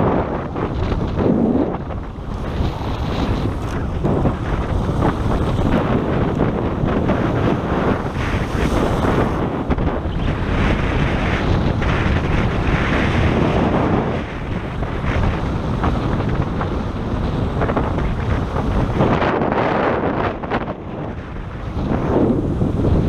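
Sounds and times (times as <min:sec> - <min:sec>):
wind buffeting microphone: 0:00.0 - 0:23.0
surf breaking on rocks: 0:00.6 - 0:14.3.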